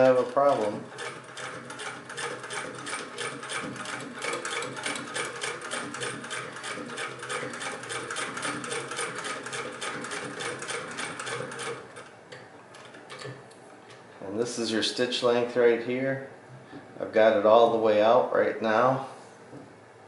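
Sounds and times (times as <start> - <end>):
sewing machine clattering: 0.0 - 12.1.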